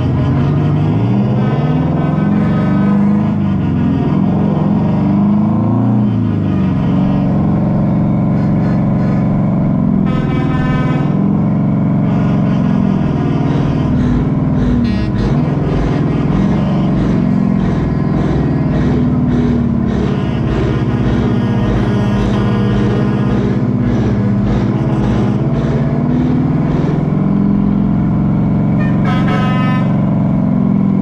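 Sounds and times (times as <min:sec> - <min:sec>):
diesel truck engine running: 0:00.0 - 0:31.0.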